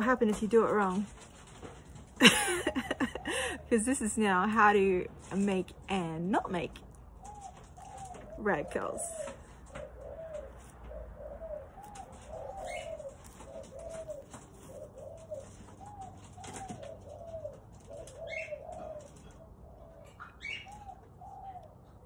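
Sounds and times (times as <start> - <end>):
doves cooing: 0.0 - 22.0
small bird chirping: 7.2 - 16.6.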